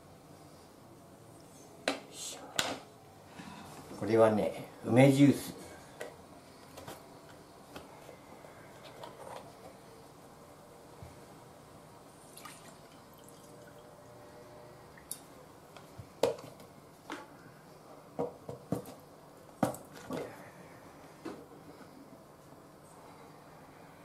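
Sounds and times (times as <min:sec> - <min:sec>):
juice trickling into glass: 0:12.3 - 0:13.9.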